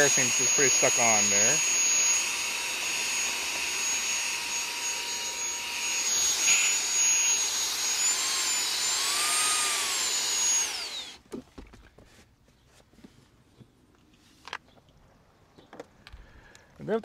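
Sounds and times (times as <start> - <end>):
handheld vacuum running: 0.0 - 11.2.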